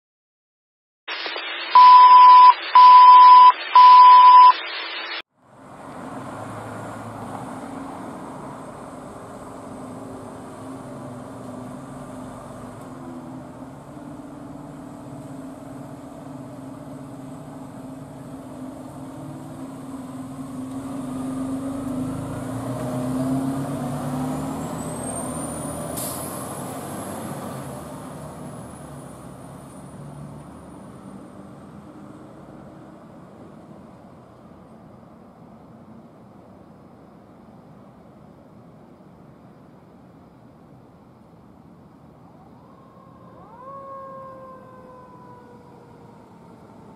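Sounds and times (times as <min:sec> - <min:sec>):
loud beeps: 0:01.1 - 0:05.2
static hiss: 0:01.1 - 0:05.2
faint high whine: 0:01.1 - 0:05.3.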